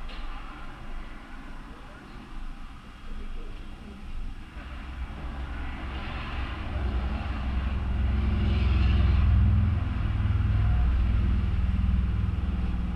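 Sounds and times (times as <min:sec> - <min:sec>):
vehicle engine droning: 0:04.4 - 0:12.9.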